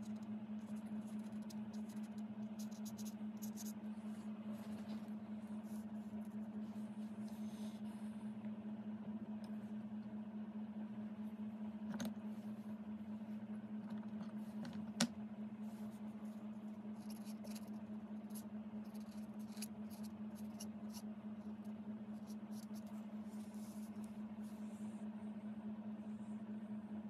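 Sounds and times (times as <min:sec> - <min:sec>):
paintbrush scratching on card: 0:00.0 - 0:05.0, 0:16.9 - 0:24.6
steady low hum: 0:00.0 - 0:27.0.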